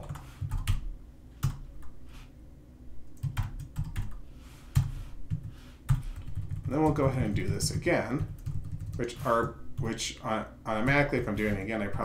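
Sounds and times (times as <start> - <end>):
typing on computer keyboard: 0.0 - 0.8, 3.2 - 4.2, 4.8 - 9.2.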